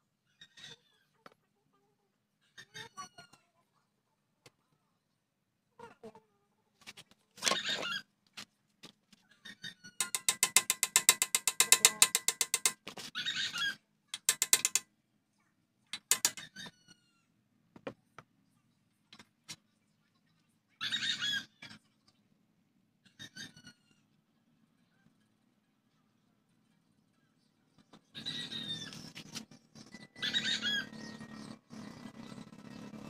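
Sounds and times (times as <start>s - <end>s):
ratchet wrench clicking: 10.0s - 12.8s, 14.2s - 14.8s, 16.0s - 16.5s
metal tools rattling and scraping: 10.0s - 12.9s, 14.2s - 14.8s, 16.0s - 16.5s.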